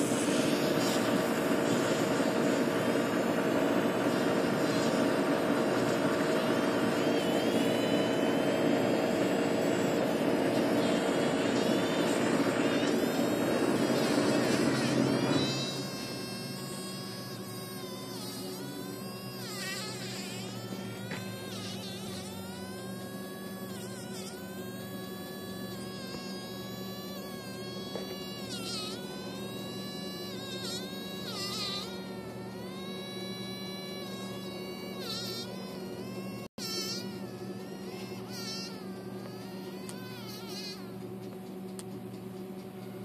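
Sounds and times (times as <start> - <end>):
fly buzzing: 0.0 - 41.8.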